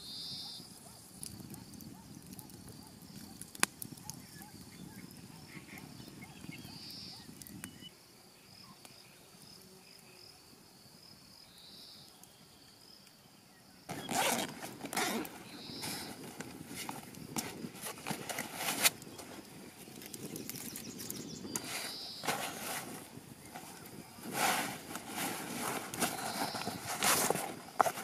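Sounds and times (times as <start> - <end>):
faint high chirping: 0.0 - 1.0
backpack rustling and clicking: 13.9 - 28.0.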